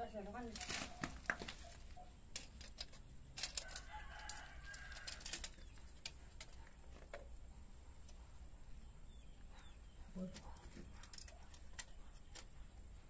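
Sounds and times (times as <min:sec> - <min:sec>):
faint rooster crowing: 0:03.4 - 0:05.7.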